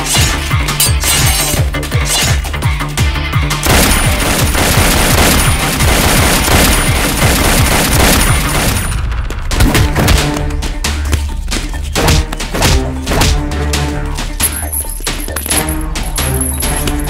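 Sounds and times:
dramatic background score: 0.0 - 17.0
rapid machine-gun fire: 3.6 - 10.2.

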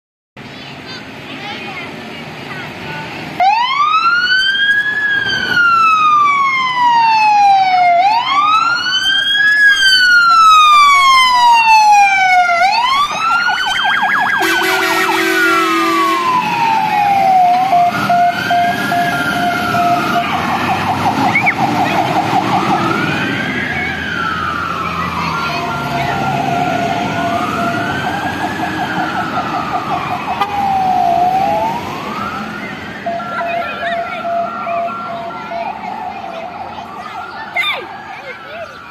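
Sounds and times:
fire engine sirens wailing: 2.5 - 38.9
air horn blast: 14.4 - 16.4.

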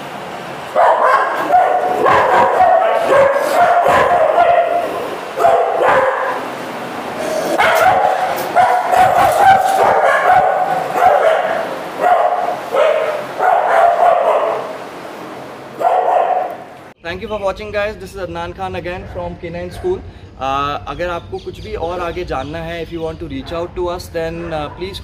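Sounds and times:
dogs barking and yipping: 0.6 - 17.0.

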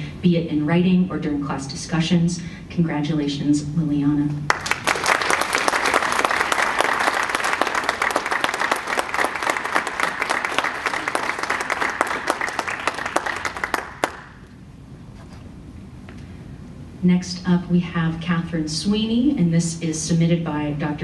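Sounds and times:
audience applauding: 4.5 - 14.5.

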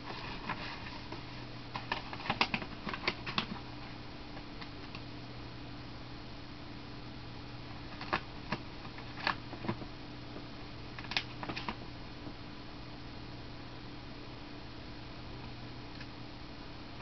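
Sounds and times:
low electrical hum: 0.0 - 17.0
cat tapping paper and plastic: 1.7 - 3.7, 7.9 - 9.9, 11.0 - 11.8.

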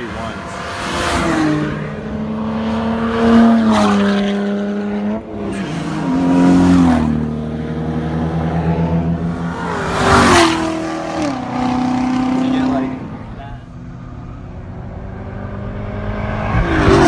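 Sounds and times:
car passing by loudly: 0.0 - 13.4
sports car engines accelerating: 0.0 - 17.0.

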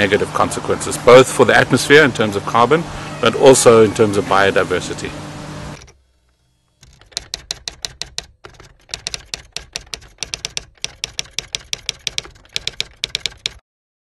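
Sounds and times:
typewriter key clacks: 6.8 - 13.6.

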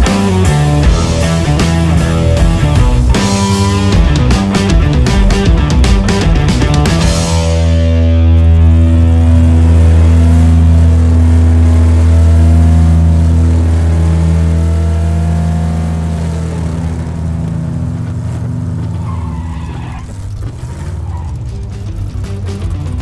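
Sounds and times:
vehicle engine droning: 0.0 - 23.0
wavering high whine: 7.1 - 20.0.

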